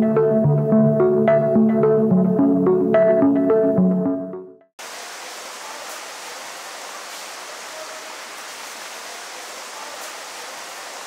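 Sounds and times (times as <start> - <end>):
waterfall rushing: 4.8 - 11.0.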